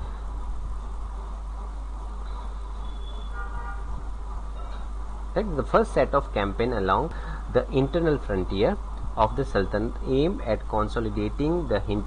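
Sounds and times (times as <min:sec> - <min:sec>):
low hum: 0:00.0 - 0:12.0
faint hiss: 0:05.0 - 0:12.0.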